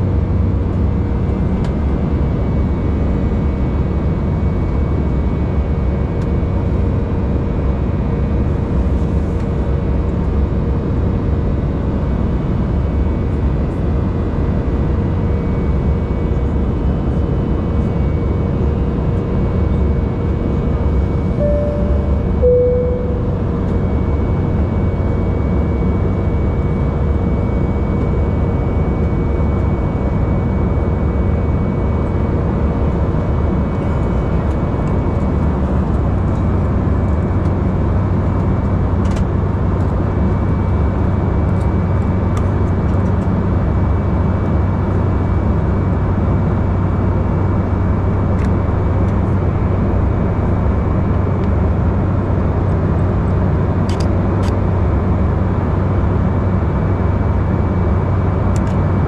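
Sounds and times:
airplane cabin engine drone: 0:00.0 - 0:59.0
faint steady tone: 0:21.3 - 0:24.0.

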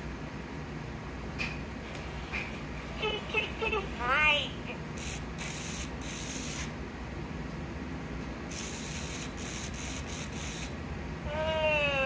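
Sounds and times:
toy motor and gears whirring: 0:05.0 - 0:06.8, 0:08.5 - 0:12.0.

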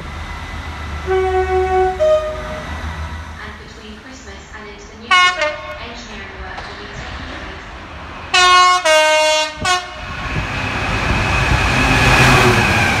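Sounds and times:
train rumbling: 0:00.0 - 0:13.0
train horn: 0:01.0 - 0:02.6, 0:05.1 - 0:05.8, 0:08.3 - 0:10.0.

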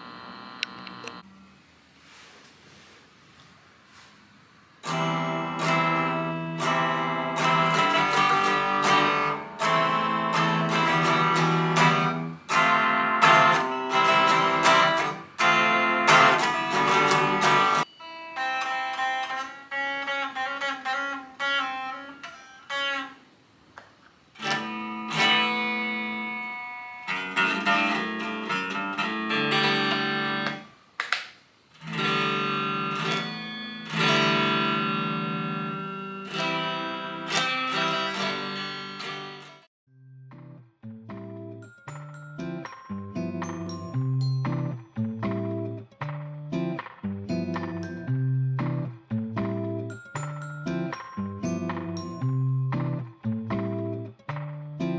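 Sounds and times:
electric guitar picked notes: 0:04.8 - 0:23.2, 0:24.4 - 0:30.7, 0:31.8 - 0:54.9
electric guitar strummed chords: 0:04.8 - 0:23.2, 0:24.4 - 0:30.7, 0:31.8 - 0:39.7, 0:40.3 - 0:54.9.

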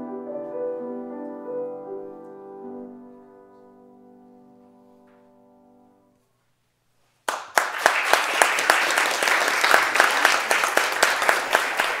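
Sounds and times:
audience applause: 0:07.3 - 0:12.0.

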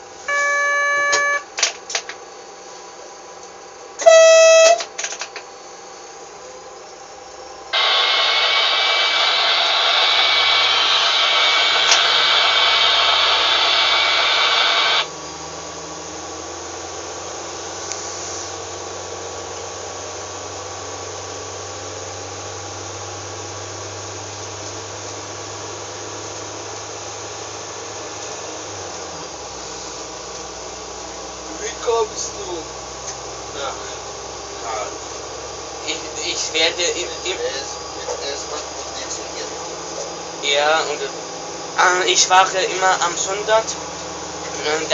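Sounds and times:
loud even hiss: 0:07.8 - 0:15.1.

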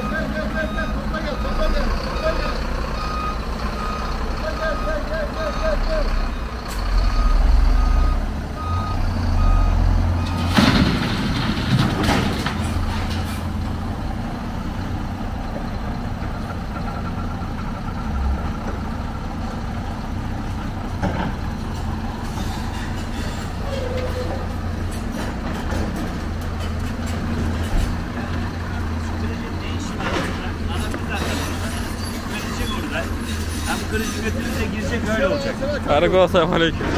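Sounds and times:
reversing alarm beeping: 0:00.0 - 0:10.5
heavy diesel machinery droning: 0:00.0 - 0:36.9
scrap metal clanking: 0:21.0 - 0:28.1, 0:29.8 - 0:35.2.

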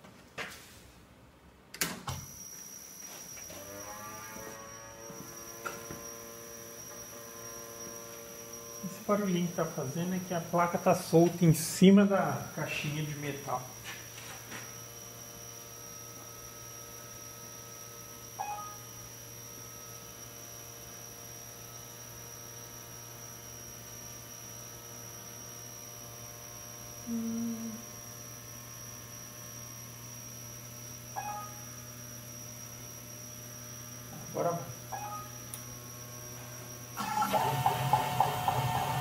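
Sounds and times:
electrical hum: 0:01.4 - 0:39.0
faint electronic blips: 0:31.1 - 0:31.8, 0:34.2 - 0:35.7.

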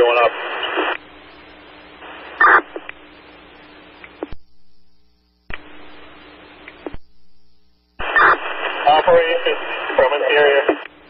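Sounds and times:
radio transmission clicks: 0:00.0 - 0:04.8, 0:05.5 - 0:11.0
radio static hiss: 0:00.0 - 0:11.0.

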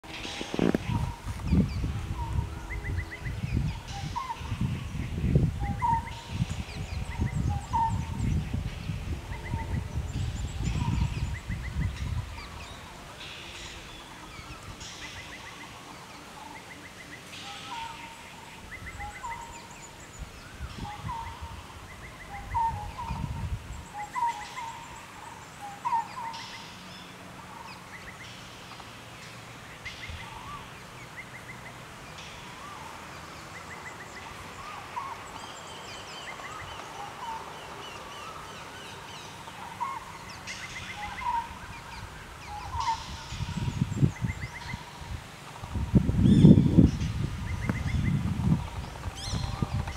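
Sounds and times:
birds chirping: 0:00.0 - 0:49.9.

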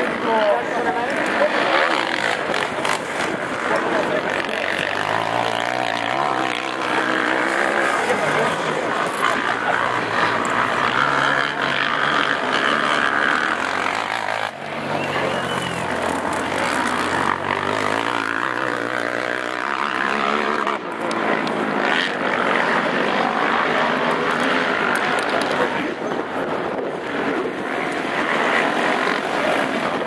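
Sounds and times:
quad engines revving: 0:00.0 - 0:30.0.

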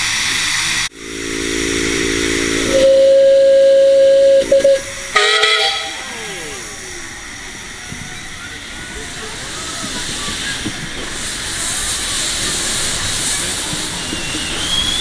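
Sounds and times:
steam hissing: 0:00.0 - 0:15.0
steam locomotive whistle: 0:01.0 - 0:08.6, 0:11.2 - 0:15.0.

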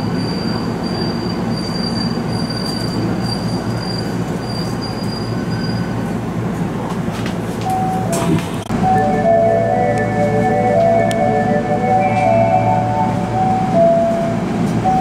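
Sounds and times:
high wheel squeal: 0:00.0 - 0:06.1
subway train wheels rumbling: 0:00.0 - 0:15.0.

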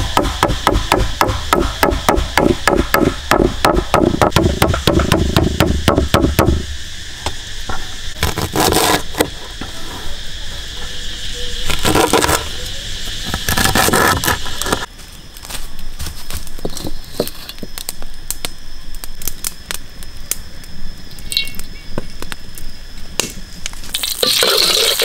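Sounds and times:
insects buzzing: 0:00.0 - 0:25.0
sugarcane torn apart by hand: 0:08.2 - 0:09.3, 0:11.7 - 0:12.4, 0:13.4 - 0:18.5.

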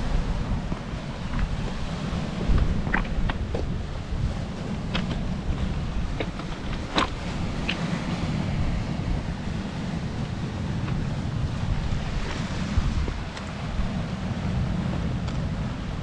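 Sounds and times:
surf washing: 0:00.0 - 0:16.0
wind buffeting microphone: 0:00.0 - 0:16.0.

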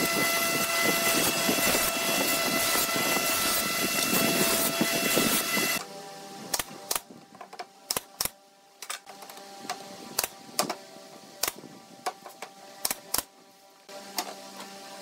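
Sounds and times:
pneumatic nailer firing nails: 0:06.5 - 0:10.8, 0:11.4 - 0:13.3.

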